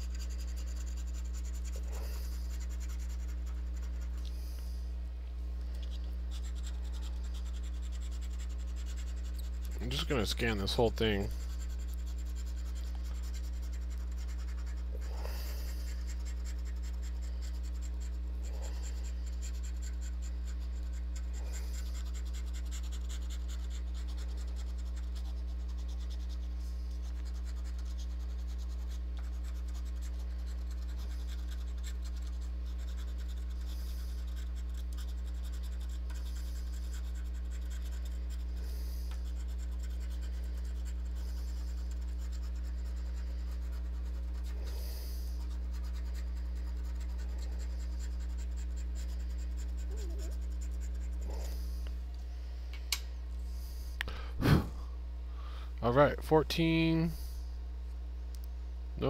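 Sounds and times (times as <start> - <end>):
coin scratching lottery ticket: 0.0 - 4.2, 6.3 - 51.6
steady low hum: 0.0 - 59.0.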